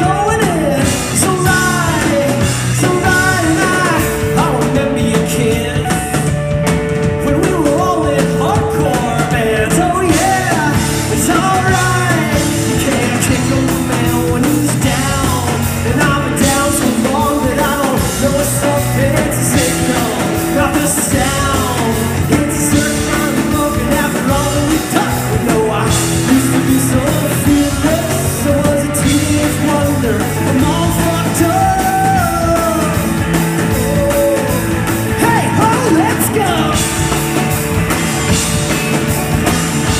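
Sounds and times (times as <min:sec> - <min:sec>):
drum kit: 0:00.0 - 0:39.9
electric bass: 0:00.0 - 0:39.9
electric guitar: 0:00.0 - 0:39.9
person singing lead vocals: 0:00.0 - 0:39.9.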